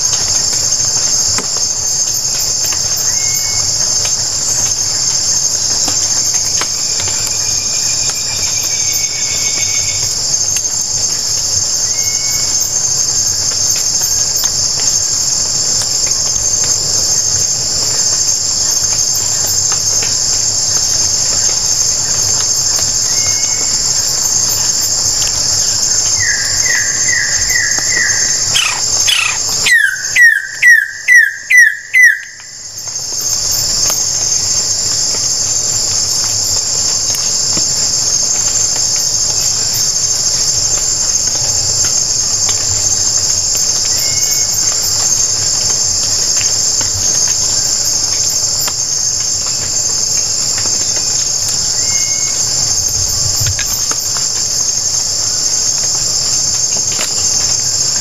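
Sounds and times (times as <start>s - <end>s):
rainforest insects chorus: 0.0s - 58.0s
bird calling: 26.2s - 32.4s.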